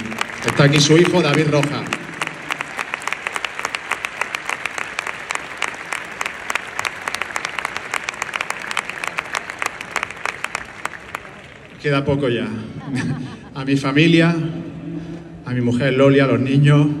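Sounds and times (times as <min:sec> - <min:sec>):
small group applauding: 0:00.0 - 0:11.8.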